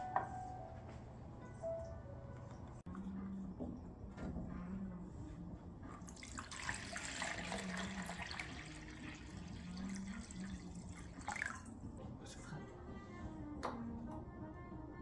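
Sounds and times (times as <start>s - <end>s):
water pouring into plastic jug: 6.1s - 11.7s.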